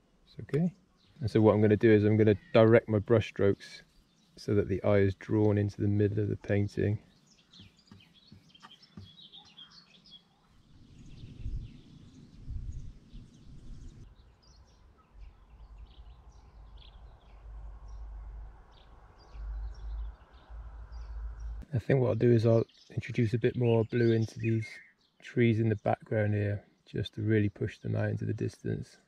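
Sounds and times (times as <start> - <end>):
songbirds chirping: 0.0 - 29.0
wind on microphone: 10.6 - 14.1.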